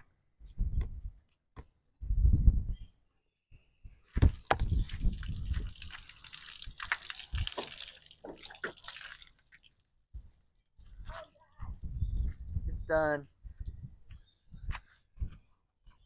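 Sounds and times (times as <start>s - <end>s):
hose water splashing: 4.5s - 9.8s.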